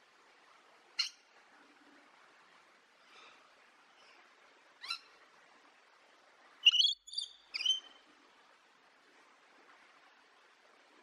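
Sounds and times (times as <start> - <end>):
faint twittering background: 0.9 - 1.3, 3.0 - 5.3, 6.6 - 8.2
high-pitched bird chirps: 6.6 - 7.9.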